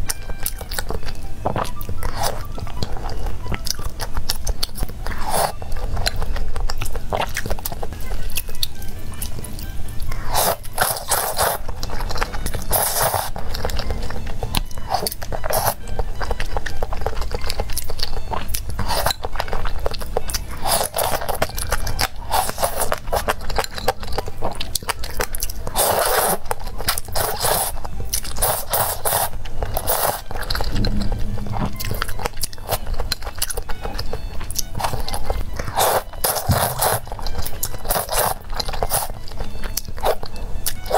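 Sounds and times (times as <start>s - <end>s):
wet chewing: 0.0s - 40.9s
noodles slurped: 5.0s - 7.7s, 10.1s - 30.8s, 32.4s - 40.9s.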